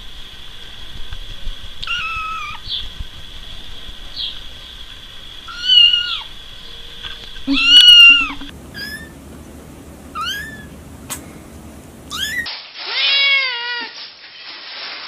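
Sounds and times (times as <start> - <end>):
kitten meowing: 1.8 - 2.6, 5.5 - 6.3, 7.5 - 9.2, 10.2 - 10.7, 12.1 - 13.9
young kittens mewing: 1.8 - 2.6, 5.5 - 6.3, 7.5 - 9.2, 10.1 - 10.7, 12.1 - 13.9.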